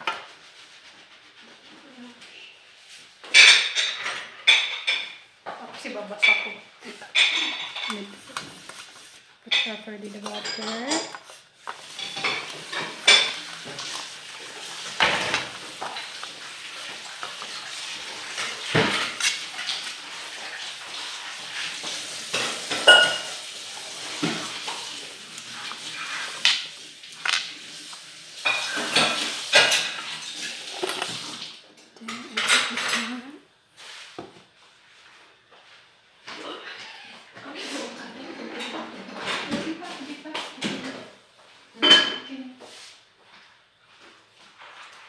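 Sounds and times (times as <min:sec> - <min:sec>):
metal utensil scraping pan: 0:05.9 - 0:31.4.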